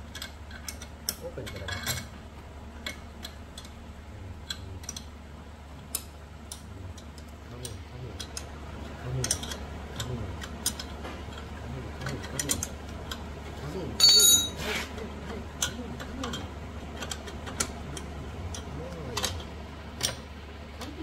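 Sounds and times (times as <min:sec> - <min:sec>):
spanner clicking on metal: 0:00.0 - 0:02.1, 0:04.4 - 0:05.1, 0:09.2 - 0:11.0, 0:15.6 - 0:17.7
steady low hum: 0:00.0 - 0:21.0.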